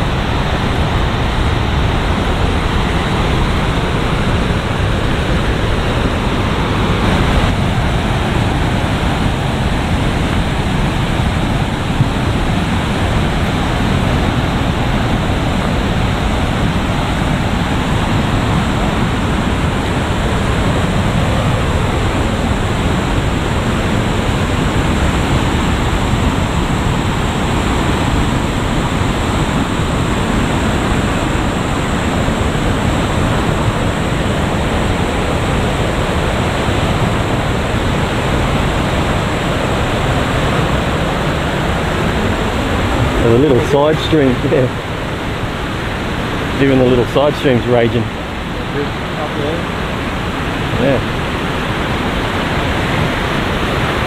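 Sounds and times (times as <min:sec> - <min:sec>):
water rushing over rocks: 0:00.0 - 0:54.0.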